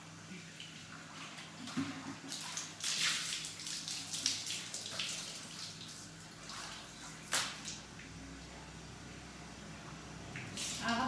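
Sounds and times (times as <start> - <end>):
hose water splashing on floor: 0.6 - 8.2, 10.4 - 11.0.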